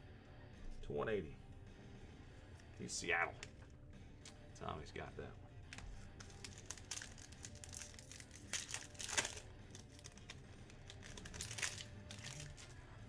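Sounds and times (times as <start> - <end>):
card pack wrappers crinkling: 5.7 - 12.8.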